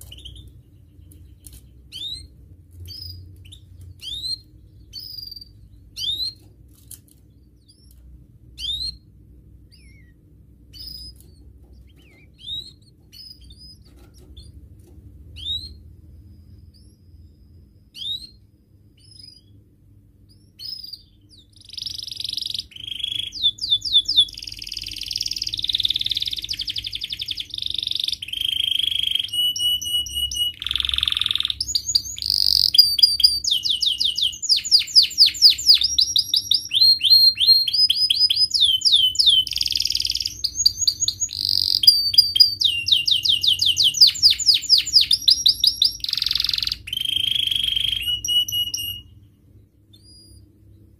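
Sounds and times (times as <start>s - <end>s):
canary song with trills: 0.0s - 50.9s
canary call notes: 20.3s - 49.2s.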